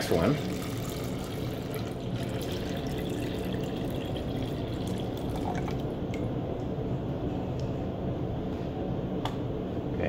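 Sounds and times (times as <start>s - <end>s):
water pouring into bottle: 0.0s - 6.0s
water dripping: 0.0s - 6.7s.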